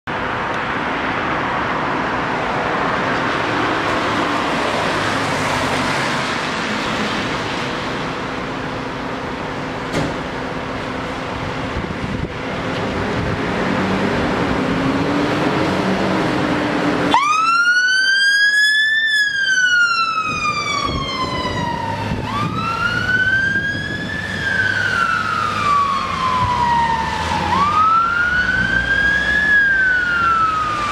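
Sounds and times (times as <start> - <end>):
diesel engine revving: 0.2 - 17.8, 18.8 - 30.9
wail siren: 17.0 - 30.9.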